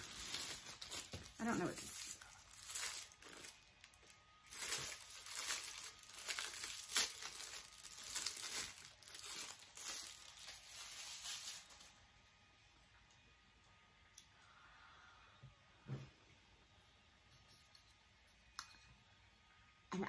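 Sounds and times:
packaging wrap tearing and crumpling: 0.0 - 12.0
sharp crackle: 0.0 - 12.0.

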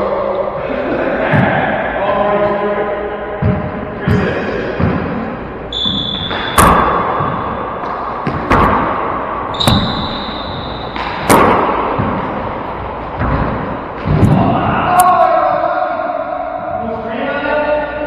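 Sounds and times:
ball striking walls and floor: 3.4 - 15.6
sneakers squeaking on hardwood: 5.7 - 8.9, 9.5 - 11.4.

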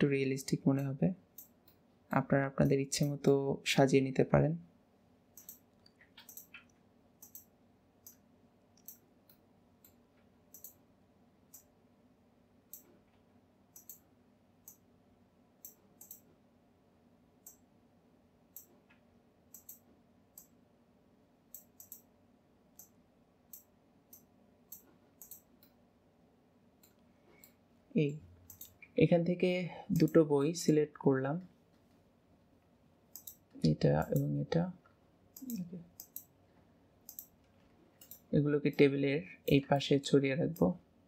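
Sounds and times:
faint low hum: 0.0 - 41.0
mouse and keyboard clicking: 5.4 - 10.8, 13.7 - 14.8, 15.6 - 16.3, 18.5 - 20.6, 21.5 - 22.1, 22.8 - 25.8, 28.5 - 28.8, 29.9 - 30.2, 33.1 - 34.6, 35.3 - 36.3, 37.0 - 37.4, 38.0 - 38.9.

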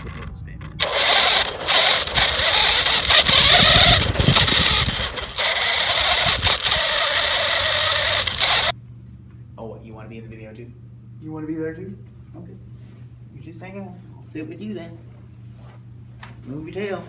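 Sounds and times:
rough noisy rattle: 0.0 - 8.7
toy truck motor whining: 0.0 - 8.7.

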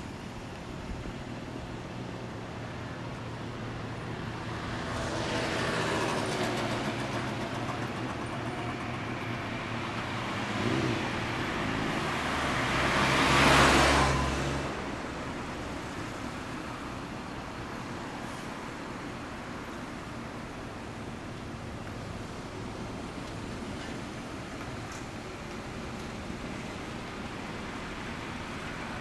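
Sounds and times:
small truck passing close: 0.0 - 29.0
car passing: 3.6 - 8.0, 9.0 - 21.3.

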